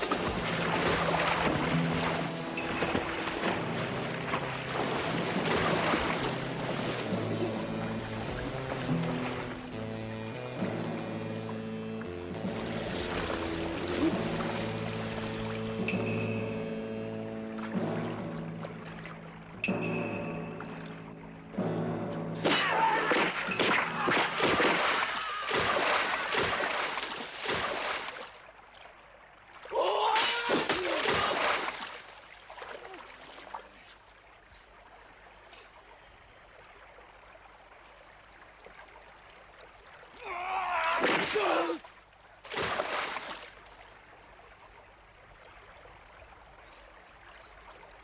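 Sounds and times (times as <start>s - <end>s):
heavy splashing in water: 0.0s - 9.5s, 12.5s - 15.8s, 22.4s - 28.4s, 29.6s - 33.7s, 40.1s - 43.7s.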